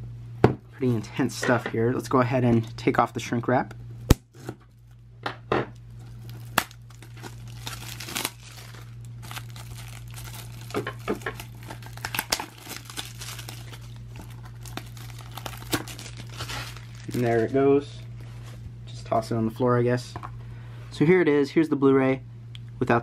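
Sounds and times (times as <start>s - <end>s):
plastic wrap crinkling and tearing: 5.9s - 18.2s.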